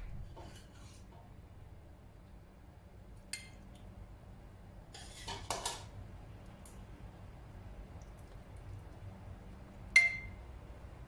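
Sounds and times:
metal spoon scraping ceramic dish: 4.9 - 5.8.

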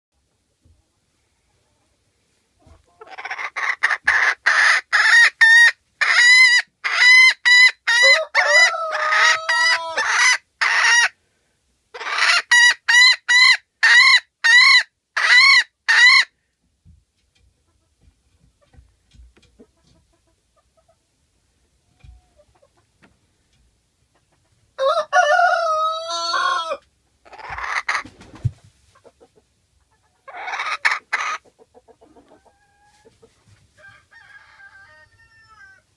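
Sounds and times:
hen cackling: 2.6 - 11.2, 11.9 - 16.3, 24.8 - 28.1, 29.0 - 33.2, 33.8 - 35.9.

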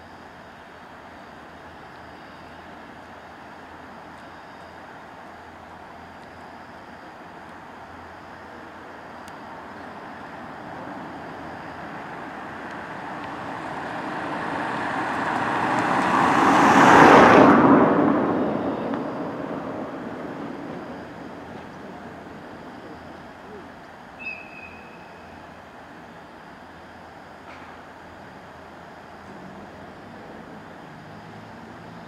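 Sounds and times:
vehicle passing by: 11.9 - 23.2.

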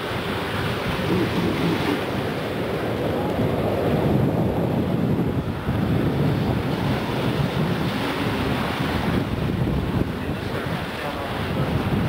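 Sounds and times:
waves and spray rushing: 0.0 - 12.0
wind buffeting microphone: 0.0 - 12.0.

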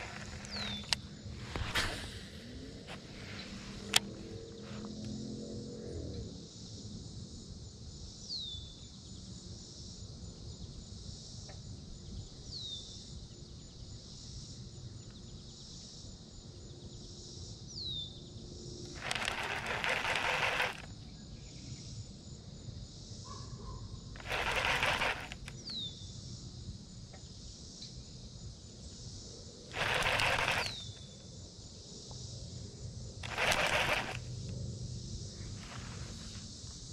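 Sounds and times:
high insect buzz: 0.0 - 4.9, 29.7 - 31.7.

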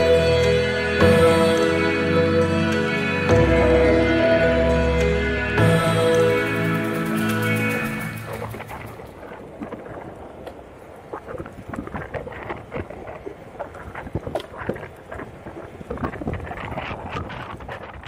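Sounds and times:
electric board rolling on asphalt: 7.4 - 18.0
wind buffeting microphone: 7.7 - 18.0.

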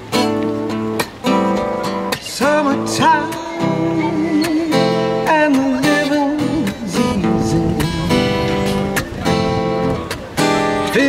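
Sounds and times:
strummed acoustic guitar: 0.0 - 11.0
person singing wavering notes: 2.4 - 8.9.

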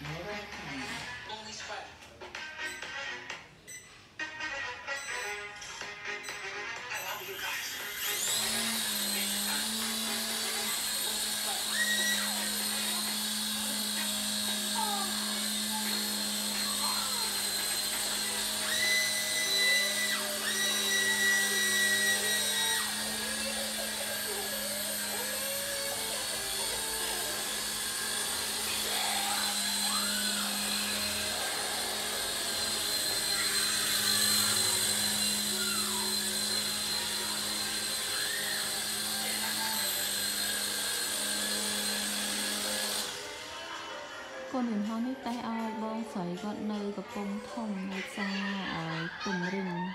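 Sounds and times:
toy helicopter rotors whirring: 4.9 - 43.9.

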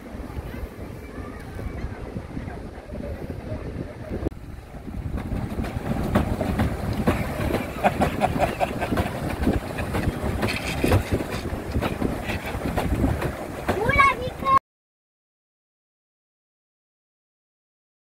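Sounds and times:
paddle wheel churning water: 0.0 - 14.6
wind on microphone: 0.0 - 14.6
pedal mechanism knocking: 5.0 - 14.2.

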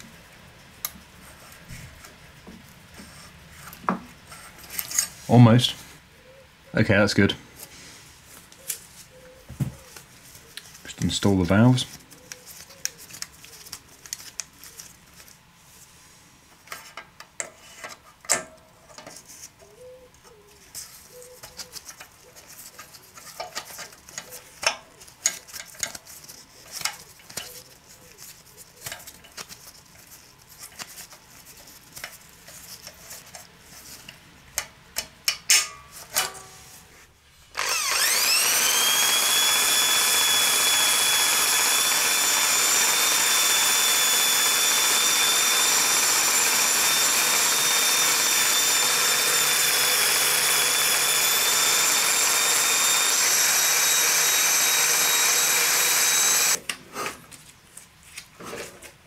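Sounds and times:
cordless drill whining: 37.5 - 56.6.

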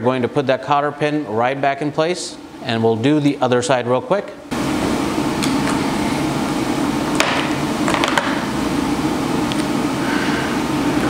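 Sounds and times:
mechanical hum: 0.0 - 11.0.

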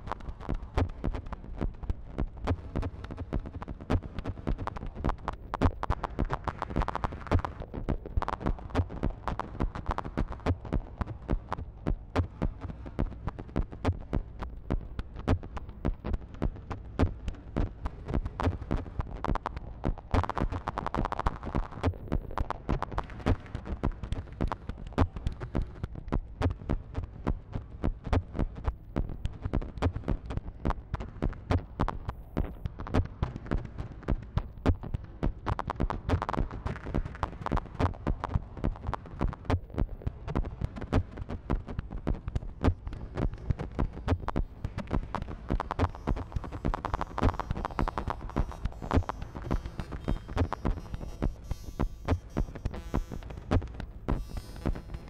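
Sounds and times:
clicky synth pulses: 42.1 - 55.0.

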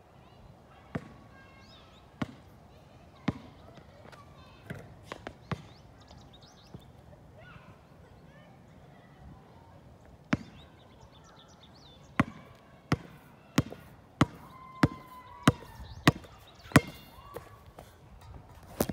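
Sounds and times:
basketball bouncing: 0.9 - 1.2, 2.2 - 2.4, 3.2 - 3.5, 4.6 - 5.7, 12.2 - 17.5.

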